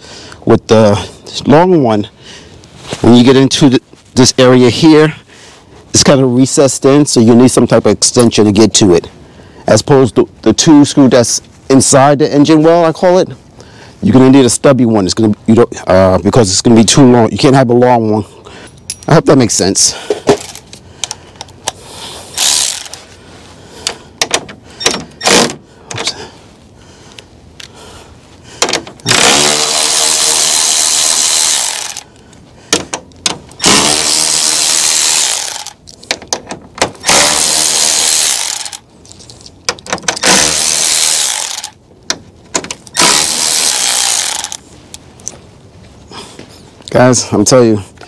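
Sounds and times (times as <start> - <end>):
cordless ratchet whirring: 22.4 - 23.1, 28.6 - 32.1, 33.6 - 35.8, 37.0 - 38.8, 40.2 - 41.8, 42.9 - 44.6.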